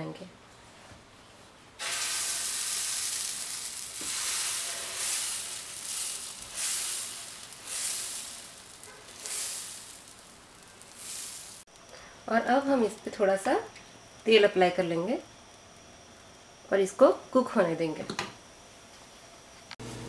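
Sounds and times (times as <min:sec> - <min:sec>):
batter sizzling on hot pan: 0:01.8 - 0:11.7.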